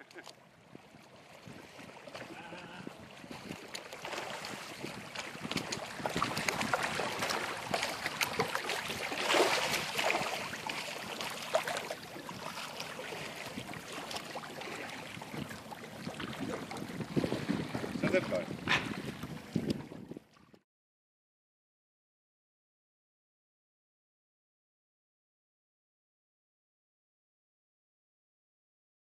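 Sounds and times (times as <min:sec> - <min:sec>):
water splashing and lapping: 0:00.0 - 0:20.6.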